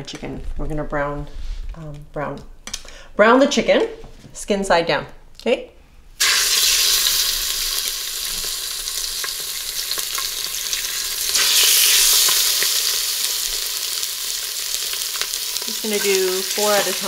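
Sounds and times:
chicken sizzling in hot oil: 6.2s - 17.0s.

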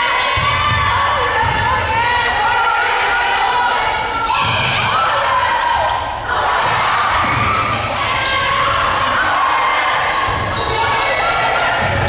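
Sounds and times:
players calling out: 0.0s - 12.0s
sneakers squeaking on gym floor: 5.0s - 6.5s, 7.3s - 12.0s.

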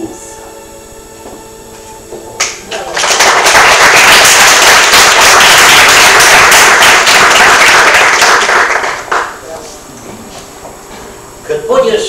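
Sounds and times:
audience applauding: 2.4s - 9.4s.

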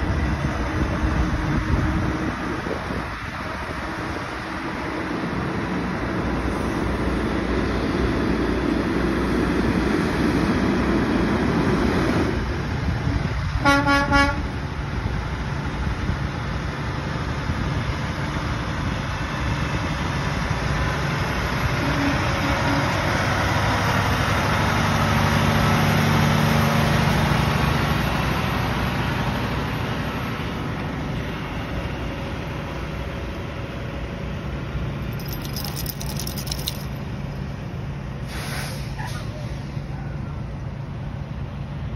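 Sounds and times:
truck engine and tyre noise: 0.0s - 41.9s
truck horn short toots: 13.6s - 14.5s.

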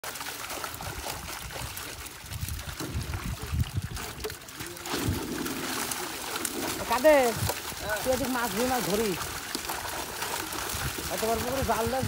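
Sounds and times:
water splashing and trickling: 0.0s - 12.0s
low knocks and bumps: 2.7s - 4.4s.

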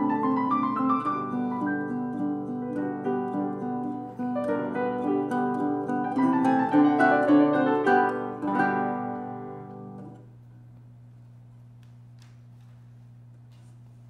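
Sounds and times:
guitar and piano duet: 0.0s - 10.3s.

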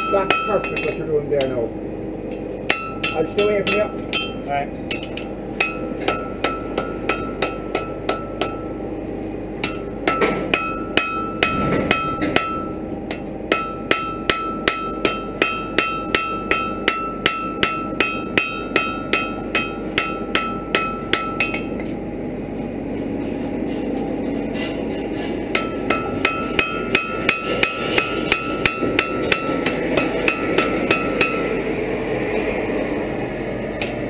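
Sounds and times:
hammer ringing on anvil: 0.0s - 1.5s, 2.7s - 8.8s, 9.6s - 22.2s, 25.5s - 31.7s.

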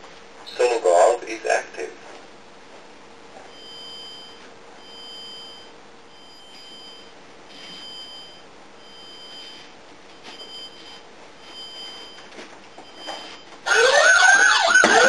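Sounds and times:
high two-toned alarm beeps: 3.5s - 15.0s.

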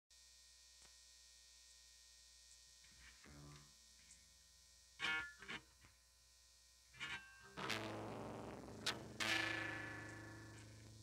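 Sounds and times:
guitar amplifier hum: 0.2s - 11.0s
guitar string noise: 5.0s - 5.7s, 7.0s - 11.0s
faint guitar string notes: 7.0s - 11.0s.

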